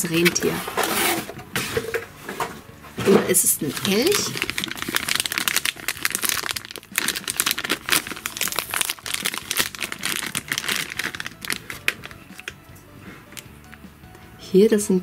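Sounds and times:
plastic bag crinkling: 3.4 - 12.6.

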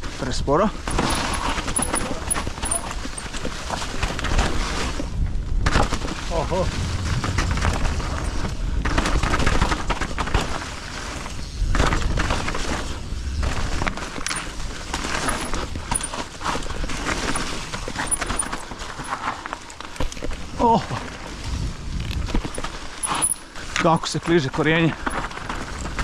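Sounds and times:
bike tyres rolling over leaves: 0.1 - 26.0
bike knocks and rattles: 0.8 - 5.0, 11.7 - 20.5
low rumble: 6.2 - 9.6.

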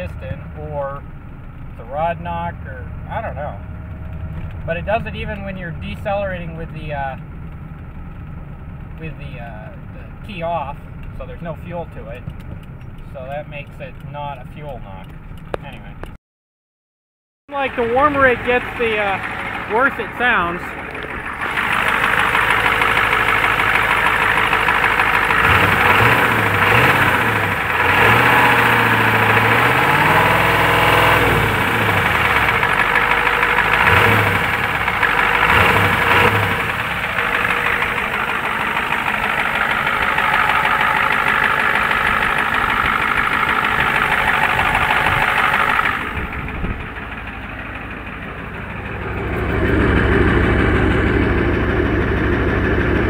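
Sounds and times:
diesel engine revving with knock: 17.6 - 53.0.

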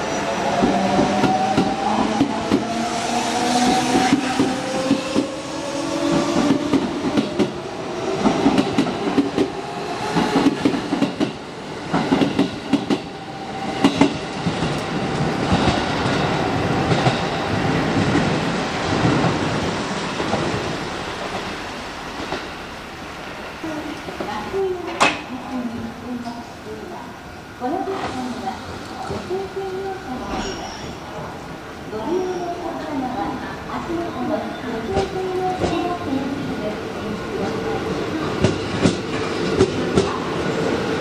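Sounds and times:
train rumble: 0.0 - 26.8, 32.7 - 41.0
train whine: 0.0 - 30.6.

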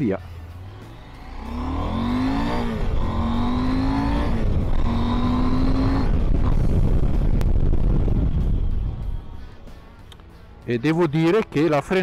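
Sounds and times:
motorcycle engine accelerating: 0.4 - 8.9
wind rumble on microphone: 4.0 - 9.4.

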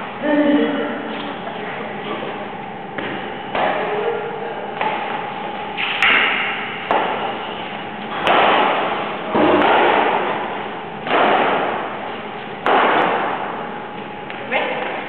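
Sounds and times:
racket hitting shuttlecock: 5.8 - 7.3, 8.1 - 10.4.

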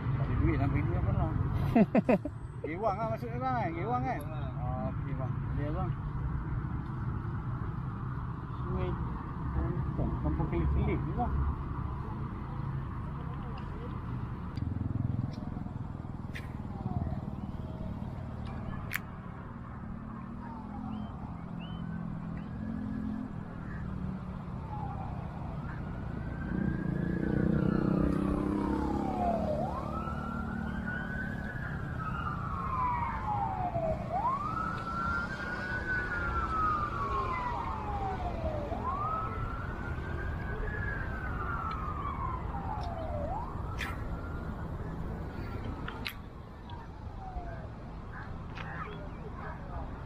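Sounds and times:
emergency siren wailing: 14.8 - 18.9, 19.8 - 46.0, 46.6 - 48.0.

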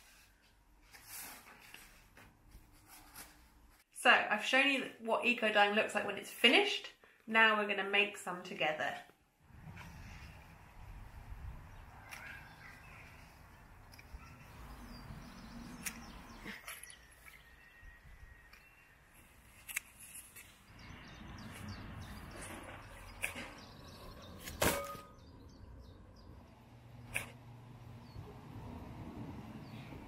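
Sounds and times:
scissors clicking cutting stems: 15.8 - 16.1
wind rumble on microphone: 28.1 - 30.0.

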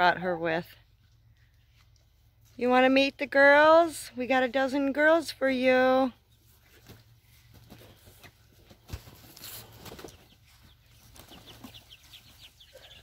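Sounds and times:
chicks peeping: 6.3 - 13.0.

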